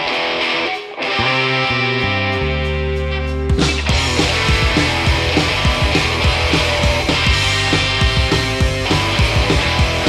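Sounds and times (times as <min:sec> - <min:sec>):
bass guitar: 0:00.0 - 0:10.0
electric guitar chords: 0:00.0 - 0:10.0
fast drum beat: 0:03.5 - 0:10.0.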